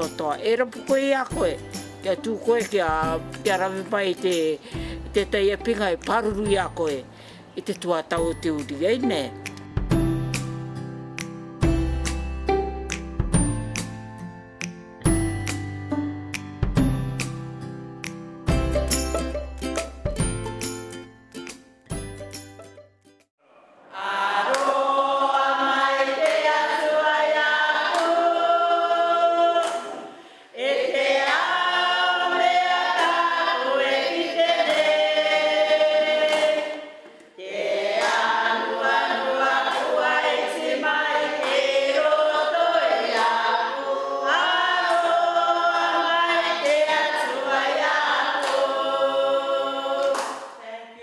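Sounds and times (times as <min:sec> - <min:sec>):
women's choir singing: 0:23.8 - 0:50.6.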